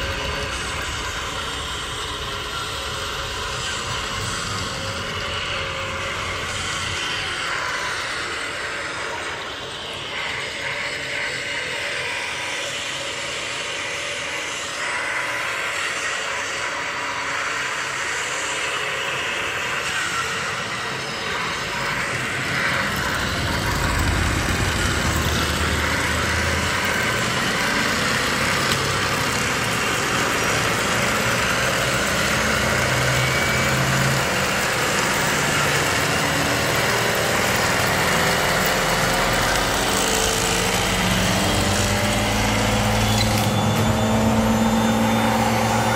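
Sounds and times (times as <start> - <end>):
heavy truck engines revving: 21.4 - 45.9.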